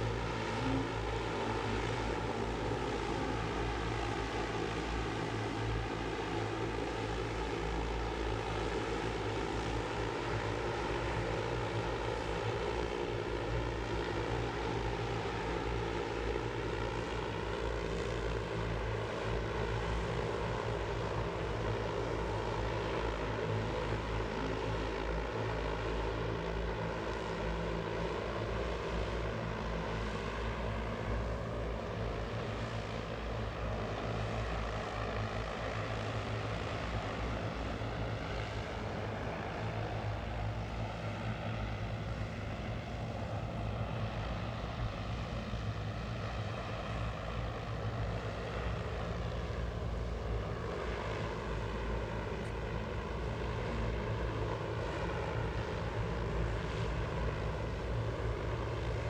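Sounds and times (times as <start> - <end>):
drone rotors humming: 0.0 - 13.6.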